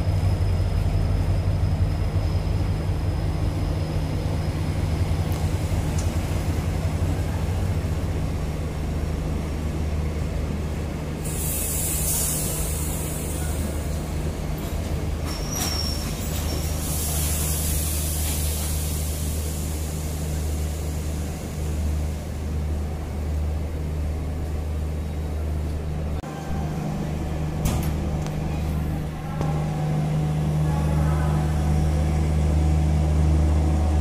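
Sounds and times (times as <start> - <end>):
train coaches rumbling past: 0.0 - 34.0
high wheel squeal: 15.2 - 17.6.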